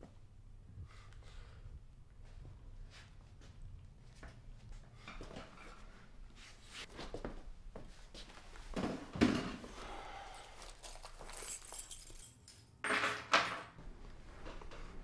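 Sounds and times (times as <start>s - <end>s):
tools jangling and clinking: 10.4s - 13.8s
tools clattering: 10.6s - 13.8s.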